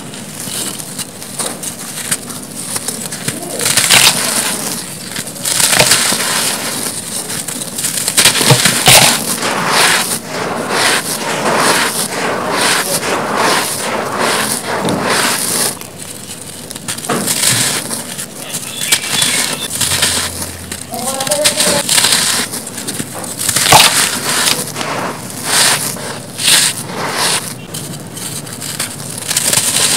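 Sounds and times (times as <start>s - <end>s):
cement blocks crumbling by hand: 0.2s - 9.4s, 14.4s - 29.9s
sharp cracks: 16.7s - 27.6s.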